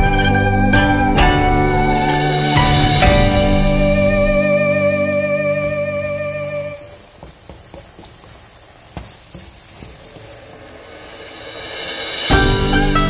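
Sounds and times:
held instrumental chord: 0.0s - 6.8s, 12.2s - 13.0s.

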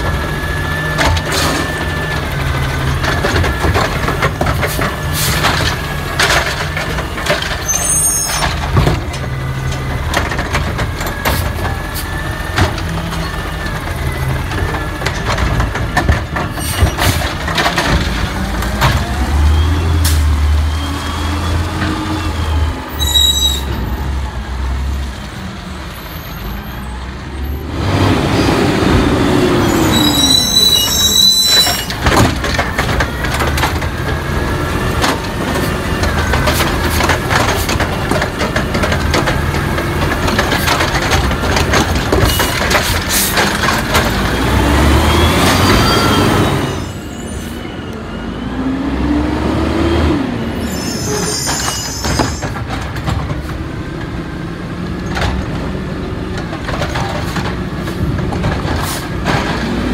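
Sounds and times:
cart clanking and banging: 0.0s - 24.9s, 27.5s - 47.9s, 49.5s - 59.9s
diesel engine revving: 8.6s - 23.0s, 27.0s - 50.7s.

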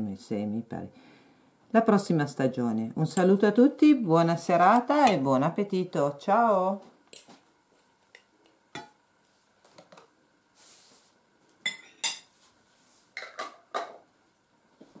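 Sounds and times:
tableware clinking: 11.6s - 12.3s, 13.2s - 14.0s.

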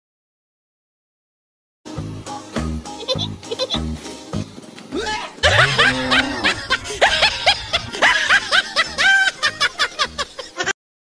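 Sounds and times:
background music: 1.9s - 10.7s
high-pitched snickering giggles: 3.0s - 3.9s, 5.4s - 10.7s.

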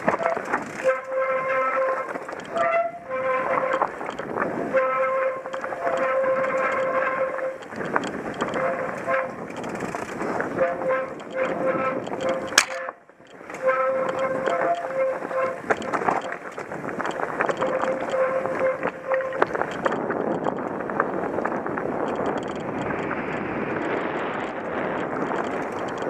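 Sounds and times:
bike tyres rumbling over gravel: 0.0s - 26.0s
squealing tone from bike: 0.1s - 7.7s, 13.6s - 15.9s, 17.6s - 19.4s
sharp click: 11.2s - 13.4s.

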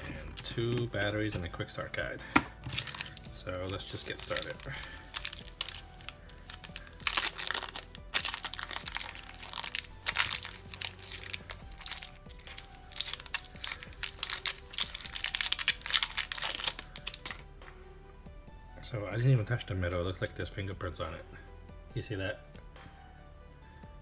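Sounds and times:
quiet background music: 0.0s - 24.0s
plastic film crinkling: 2.4s - 17.5s.

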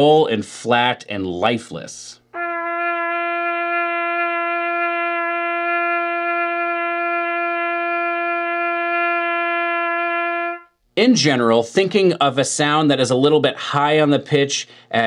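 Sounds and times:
trumpet holding long note: 2.4s - 10.7s.

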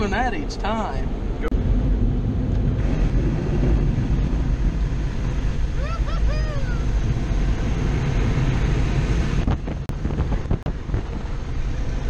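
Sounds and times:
person whooping: 5.8s - 6.9s.

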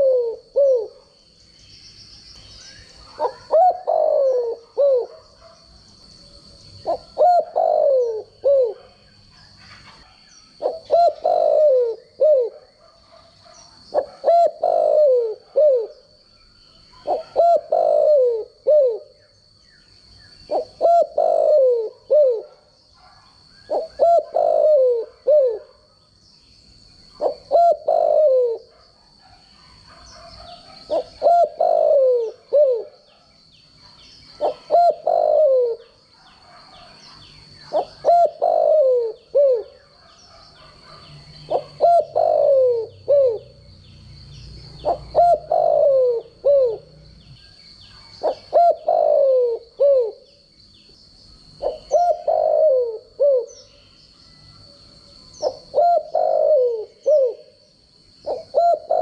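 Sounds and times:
dove cooing: 0.0s - 1.1s, 2.9s - 5.6s, 6.4s - 16.1s, 16.8s - 19.2s, 20.4s - 25.9s, 27.2s - 33.3s, 34.3s - 43.6s, 44.7s - 47.0s, 47.9s - 50.4s, 51.6s - 53.8s, 55.3s - 57.6s, 58.2s - 59.0s.

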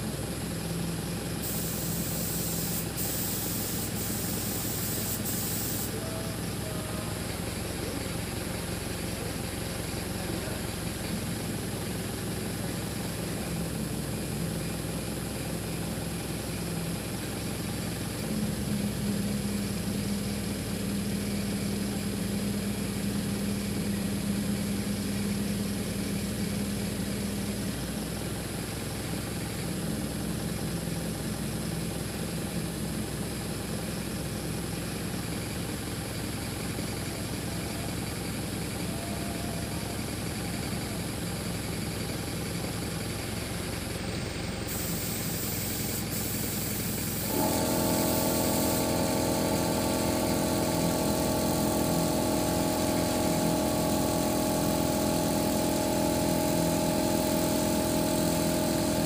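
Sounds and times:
boom lift engine running: 0.0s - 59.0s.

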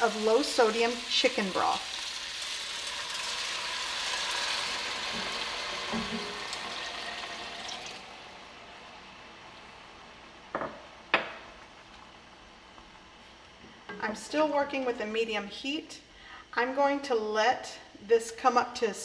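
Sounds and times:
broth pouring and sizzling: 0.0s - 10.3s.

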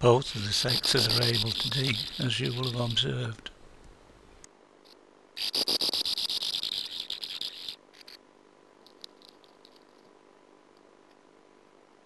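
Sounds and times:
bird rasping call: 0.4s - 3.1s.

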